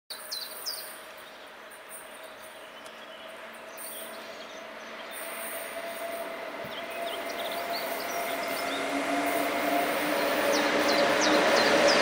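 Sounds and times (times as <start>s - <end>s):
freight train rail noise: 0.5s - 12.0s.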